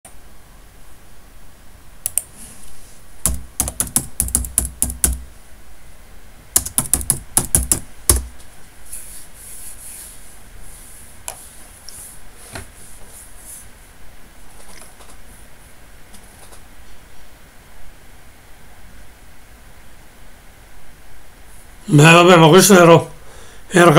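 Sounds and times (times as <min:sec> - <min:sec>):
typing on a keyboard: 0:03.3 - 0:05.3, 0:06.6 - 0:08.3.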